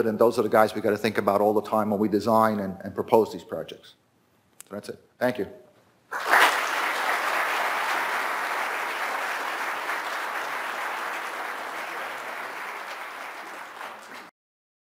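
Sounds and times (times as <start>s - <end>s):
audience applauding: 6.1s - 14.3s.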